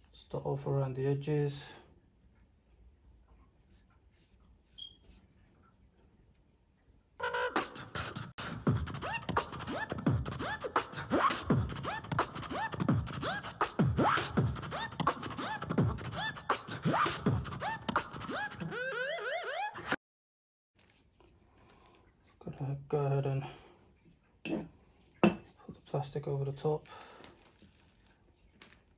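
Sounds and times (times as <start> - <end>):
vocal beatbox beat: 7.6 - 18.6.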